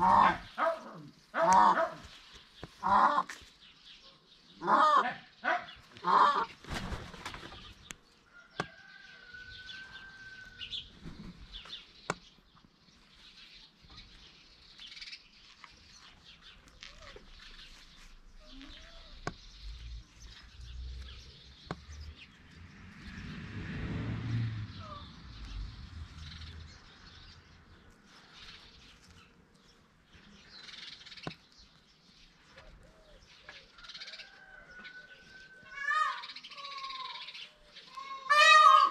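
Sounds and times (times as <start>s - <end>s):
peafowl calling: 0.0s - 0.8s, 1.4s - 2.1s, 2.8s - 3.4s, 6.0s - 6.5s, 32.9s - 38.9s.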